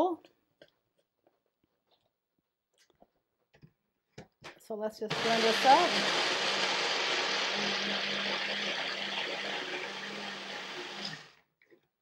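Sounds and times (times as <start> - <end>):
blender motor running: 5.1 - 11.4.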